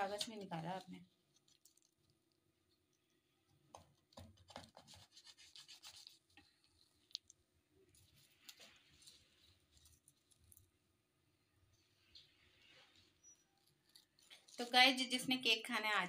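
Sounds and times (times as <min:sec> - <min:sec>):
knife scraping through cake: 0:04.4 - 0:07.0, 0:12.4 - 0:15.2.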